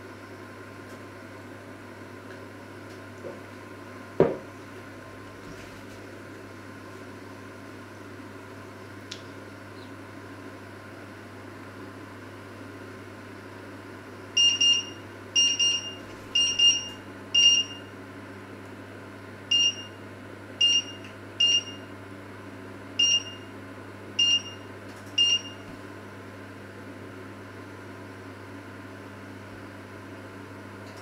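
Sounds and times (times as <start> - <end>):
hob touch controls beeping: 14.4 - 17.8, 25.2 - 25.6.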